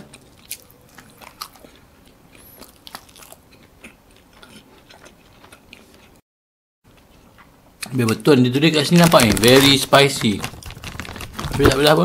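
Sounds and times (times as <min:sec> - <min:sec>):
close chewing: 0:00.0 - 0:06.2.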